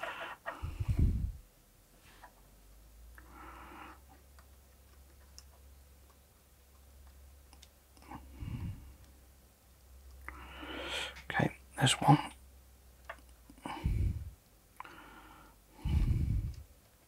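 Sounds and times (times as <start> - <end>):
person breathing: 0.0 - 1.4, 3.2 - 4.1, 8.0 - 9.0, 10.3 - 11.2, 13.6 - 16.7
low mains hum: 0.0 - 17.0.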